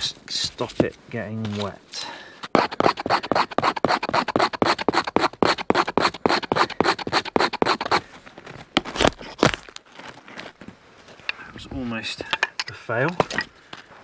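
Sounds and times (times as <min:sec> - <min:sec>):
ferro rod scraping: 0:02.5 - 0:08.0
knife scraping bark: 0:02.5 - 0:08.0.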